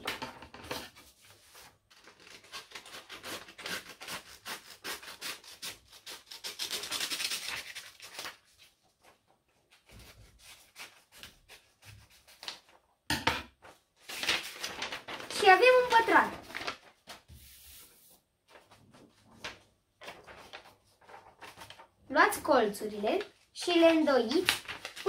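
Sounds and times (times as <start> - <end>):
scissors snipping paper: 2.0 - 8.4
paper rustling: 6.0 - 12.8, 13.6 - 25.0.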